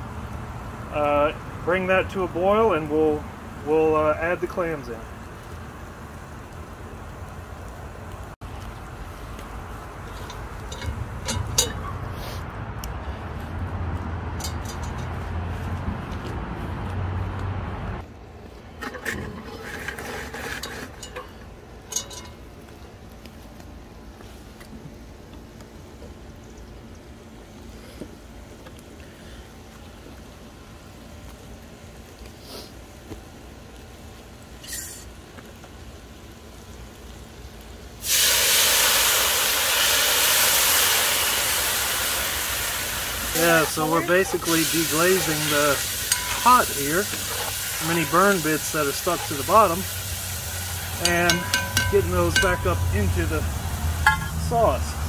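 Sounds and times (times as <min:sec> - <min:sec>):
wine sizzling in a hot pot: 0:00.0 - 0:12.4, 0:29.1 - 0:55.0
metal pot clinking and scraping: 0:10.0 - 0:12.0, 0:14.4 - 0:15.2, 0:18.8 - 0:22.4, 0:46.0 - 0:49.7, 0:51.0 - 0:53.0, 0:54.0 - 0:54.4
sharp metal clank: 0:10.1 - 0:12.0, 0:46.1 - 0:46.5, 0:51.0 - 0:53.0, 0:54.0 - 0:54.5.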